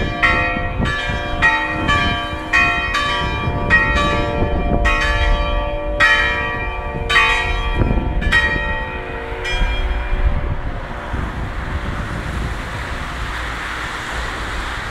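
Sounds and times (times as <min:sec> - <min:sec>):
church bells ringing: 0:00.0 - 0:11.0
steady rushing noise: 0:00.0 - 0:14.9.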